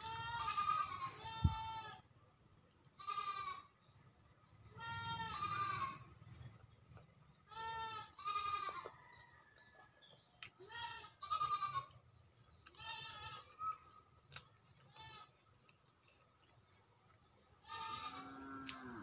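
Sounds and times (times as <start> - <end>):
livestock bleating: 0.0 - 2.0, 3.0 - 3.7, 4.8 - 6.1, 7.5 - 8.9, 10.7 - 11.9, 12.8 - 13.5, 14.9 - 15.3, 17.6 - 19.0.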